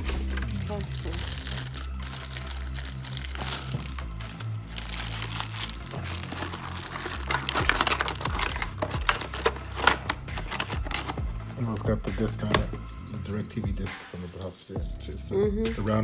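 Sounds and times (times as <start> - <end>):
plastic wrapping crackling: 0.0 - 11.8
background music: 0.0 - 16.0.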